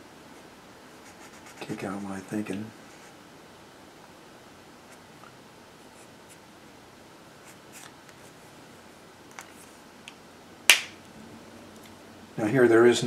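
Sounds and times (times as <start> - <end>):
marker scratching on paper: 1.0 - 2.0.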